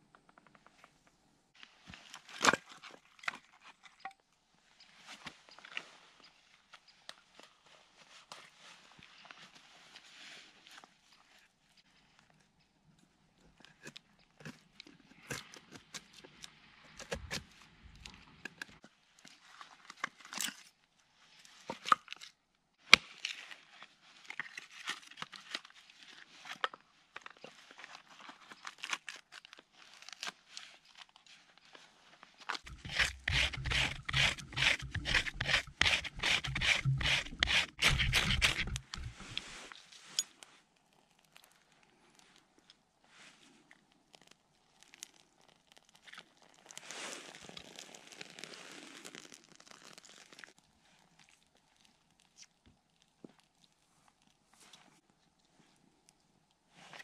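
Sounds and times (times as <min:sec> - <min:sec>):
rapid scraping strokes: 0:32.7 - 0:39.7.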